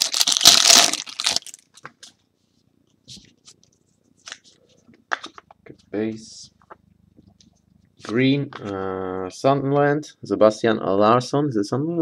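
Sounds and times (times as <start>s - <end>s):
foil wrapper tearing and crinkling: 0.0s - 1.7s.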